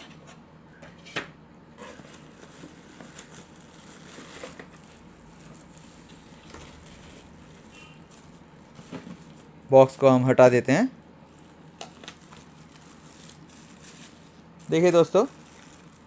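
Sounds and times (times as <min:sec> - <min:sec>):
plastic and cardboard rustling: 0:01.8 - 0:09.5, 0:11.3 - 0:16.0.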